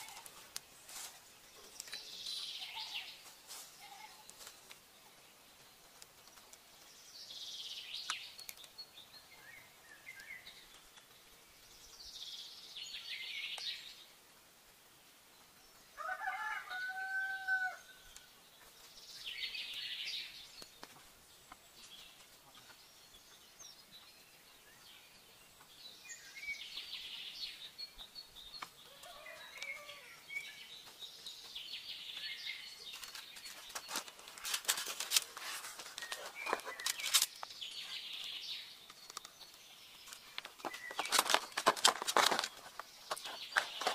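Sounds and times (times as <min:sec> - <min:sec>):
birds calling: 0:01.5 - 0:14.0, 0:16.2 - 0:43.9
long steady bird call: 0:01.5 - 0:14.2, 0:15.2 - 0:43.9
bamboo pole clicks and taps: 0:38.9 - 0:39.5.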